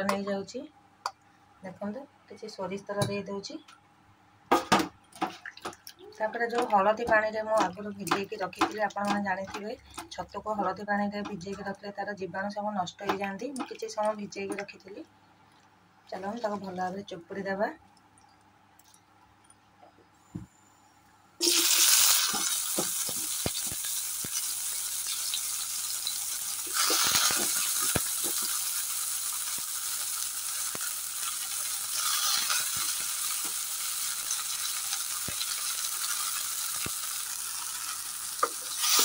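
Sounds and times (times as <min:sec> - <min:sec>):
food sizzling in hot oil: 0:21.4 - 0:39.0.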